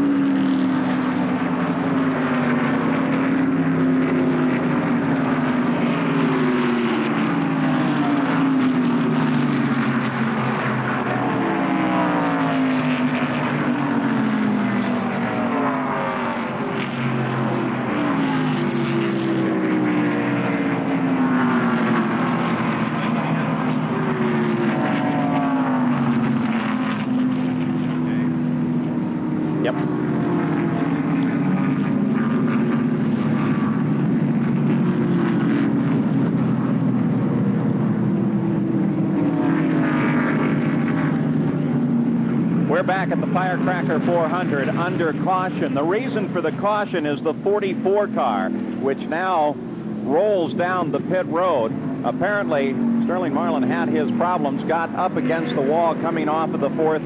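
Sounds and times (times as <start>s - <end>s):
race cars passing by: 0.0s - 57.0s.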